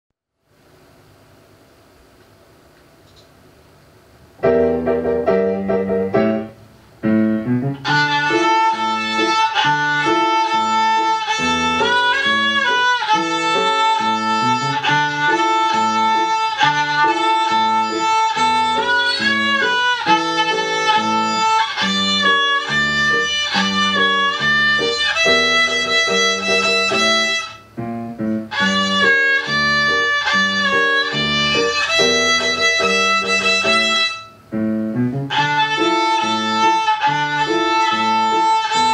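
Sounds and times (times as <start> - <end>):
musical accompaniment: 4.4 - 38.9
child playing violin: 7.8 - 34.4, 35.2 - 38.9.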